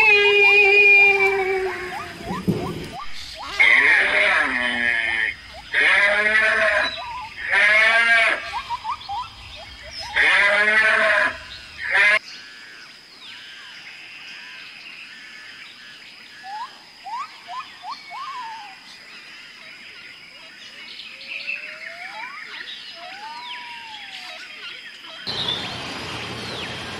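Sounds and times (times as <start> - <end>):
sheep bleating: 3.5 - 8.5, 10.1 - 12.2.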